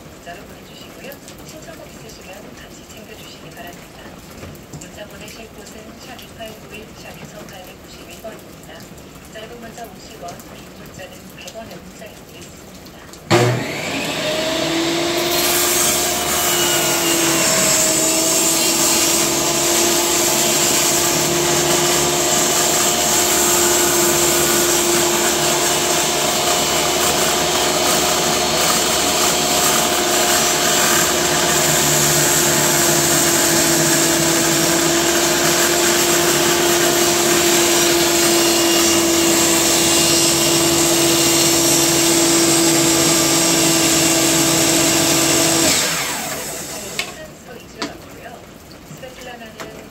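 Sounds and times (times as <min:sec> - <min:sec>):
table saw ripping board: 0:13.3 - 0:47.2.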